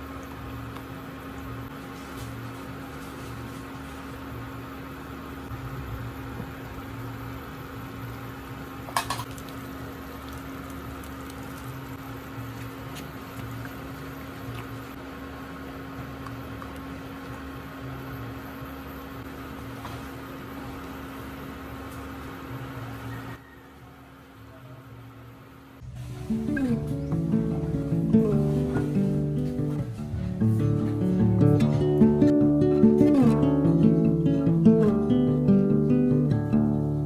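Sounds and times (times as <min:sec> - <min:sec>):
electrical hum with low throb: 0:00.0 - 0:23.4, 0:24.9 - 0:37.0
sauce bubbling in a pan: 0:09.3 - 0:14.9.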